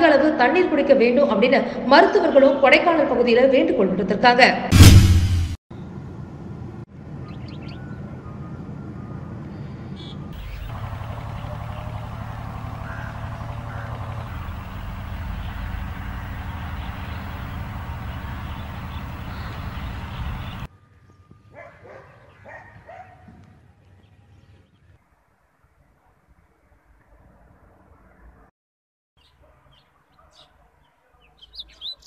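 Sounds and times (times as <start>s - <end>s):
loud steady rumbling: 4.7s - 5.6s, 10.4s - 20.7s
faint bird chirps: 9.5s - 20.7s.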